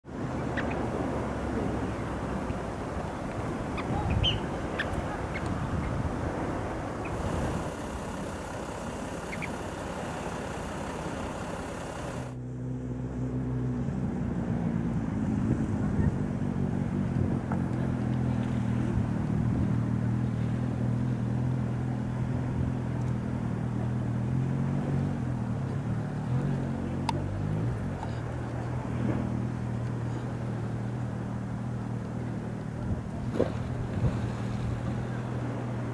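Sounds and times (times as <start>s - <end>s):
low engine hum: 0.0s - 35.9s
rushing outdoor noise: 0.0s - 35.9s
held tones: 7.0s - 12.4s.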